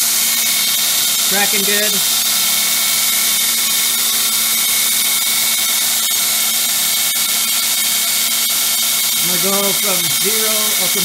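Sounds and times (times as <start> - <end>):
belt grinder running: 0.0 - 11.0.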